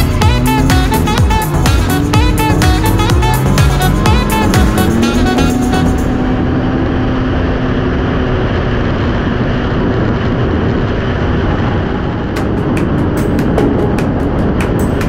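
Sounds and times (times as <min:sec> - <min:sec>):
snowmobile engine running: 0:00.0 - 0:15.0
wind on microphone: 0:05.6 - 0:15.0.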